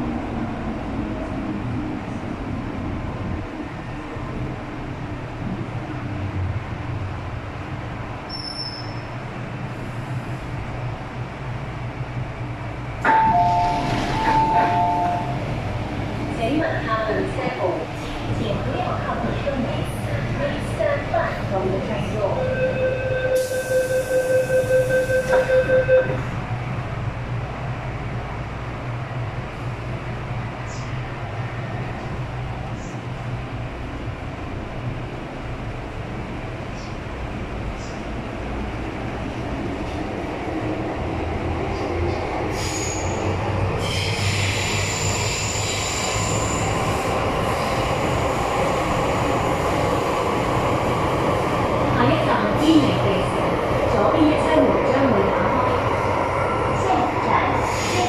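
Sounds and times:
train wheels rumbling on rail: 0.0s - 58.0s
high metallic wheel squeal: 8.3s - 9.1s
train door warning beeps: 13.1s - 15.4s, 22.3s - 26.4s.

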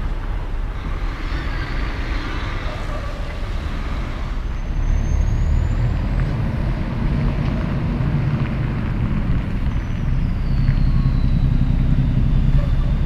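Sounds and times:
truck diesel engines rumbling: 0.0s - 13.0s
faint high whistle: 9.8s - 13.0s.

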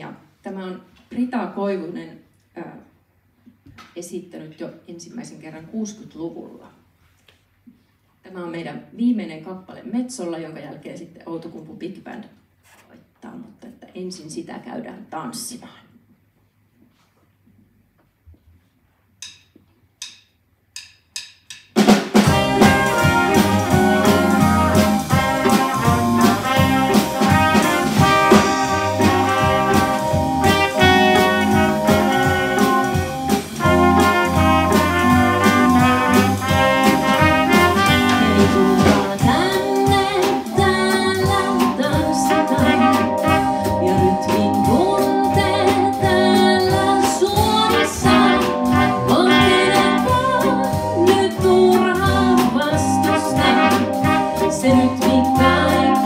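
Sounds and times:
live band playing dance music: 21.8s - 56.0s.

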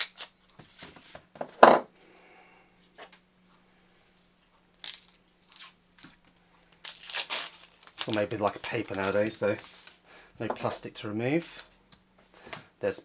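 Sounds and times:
paper wrapping tearing: 0.0s - 0.3s, 4.8s - 5.8s, 6.8s - 10.0s
faint steady hum: 0.0s - 13.0s.

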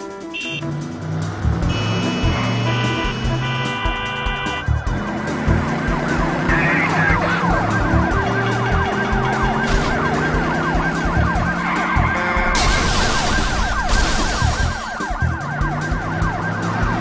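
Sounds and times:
music with steady beat: 0.0s - 12.3s
tyres skidding: 0.0s - 17.0s
police siren yelping: 1.7s - 17.0s.

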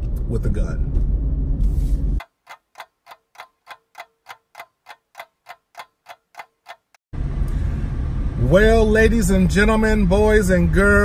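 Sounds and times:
clock ticking: 2.2s - 7.0s.

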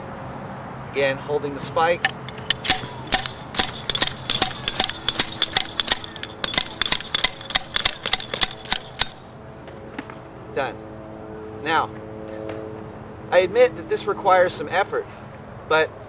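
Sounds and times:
ringing metal clanks: 1.9s - 9.4s.

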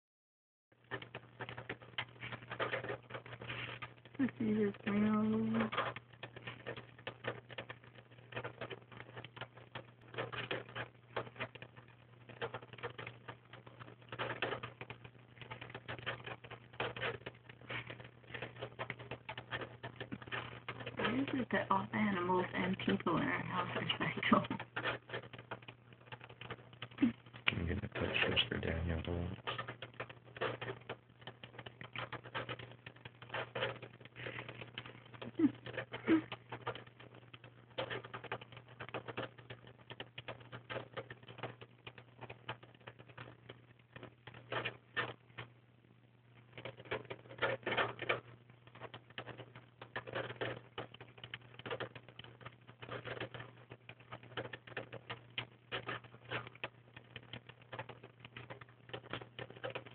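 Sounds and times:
hamster gnawing on wire bars: 0.8s - 4.2s, 5.4s - 21.3s, 24.6s - 27.4s, 29.4s - 45.5s, 46.5s - 59.9s
steady low hum: 0.9s - 47.3s.

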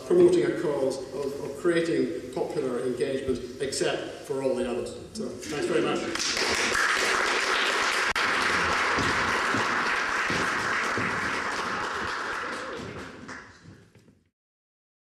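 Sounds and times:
audience applauding: 6.0s - 14.0s.

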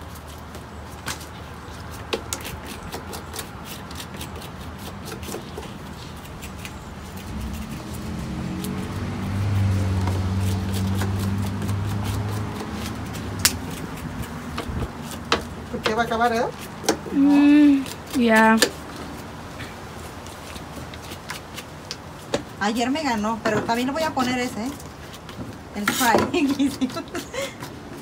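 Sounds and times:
knives clicking and scraping: 1.0s - 17.1s.

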